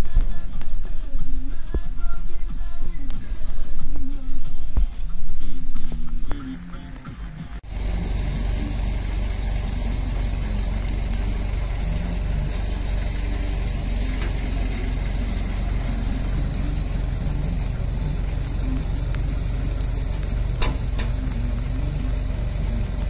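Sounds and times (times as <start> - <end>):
engine running steadily: 5.4 - 23.0.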